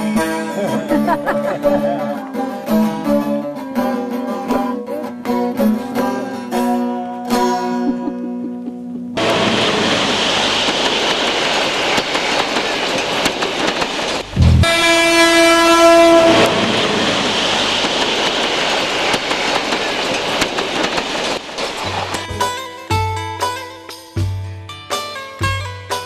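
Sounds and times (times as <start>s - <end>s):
train wagons rushing: 8.5s - 22.6s
wheels clicking on track: 8.6s - 22.6s
train horn blast: 14.3s - 17.2s.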